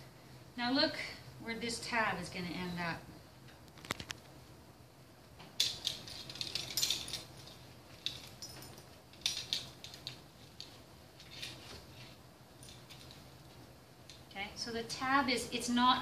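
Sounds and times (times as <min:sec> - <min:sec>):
cloth wrap rustling: 0:05.6 - 0:14.3.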